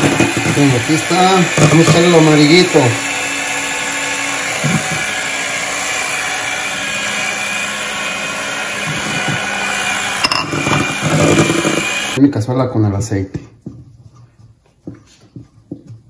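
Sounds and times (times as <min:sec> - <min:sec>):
electric hand mixer whipping: 0:00.0 - 0:12.2.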